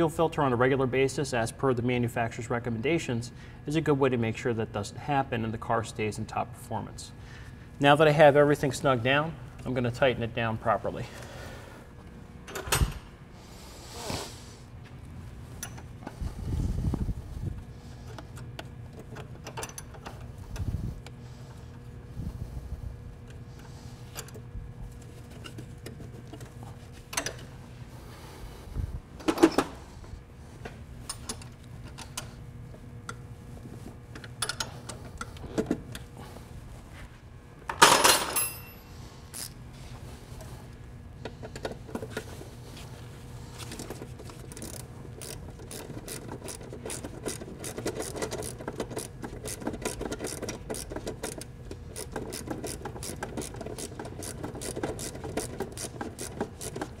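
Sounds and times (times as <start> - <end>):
metal clinks and knocks: 37.7 - 38.9
quick ratchet clicks: 44.5 - 57.0.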